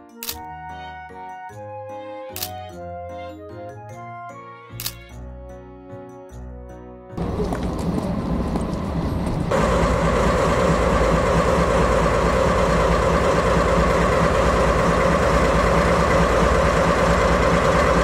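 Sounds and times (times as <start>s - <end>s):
constant whine: 7.2s - 18.0s
diesel locomotive idling: 7.2s - 18.0s.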